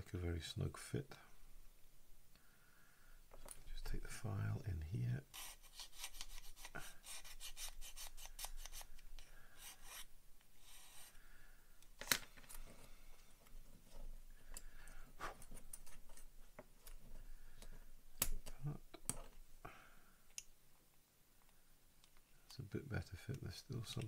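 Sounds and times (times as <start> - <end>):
file rasping on plastic: 5.3 - 8.9.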